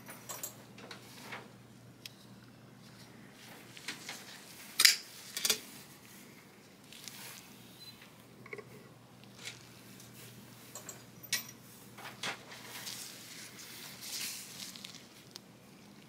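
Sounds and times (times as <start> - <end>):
glove rustling: 6.7 - 7.9, 9.3 - 10.4, 12.5 - 16.0.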